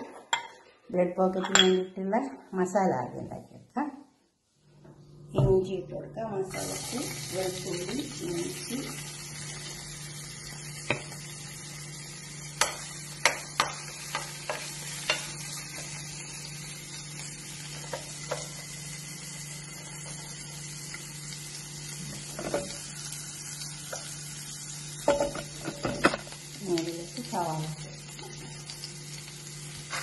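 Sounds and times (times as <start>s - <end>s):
food sizzling in hot oil: 6.5s - 30.0s.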